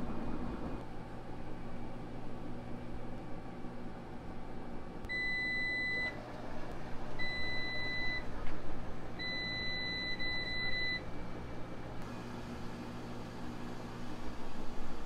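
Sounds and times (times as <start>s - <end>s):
steady low hum: 0.0s - 15.0s
washer electronic beeps: 5.1s - 6.2s, 7.2s - 8.3s, 9.2s - 11.0s.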